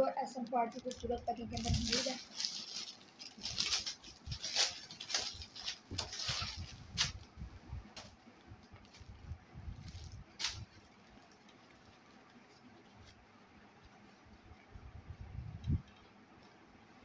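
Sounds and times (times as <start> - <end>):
plastic bag crinkling: 0.2 - 7.3, 8.8 - 13.2
fabric rustling: 0.3 - 14.6.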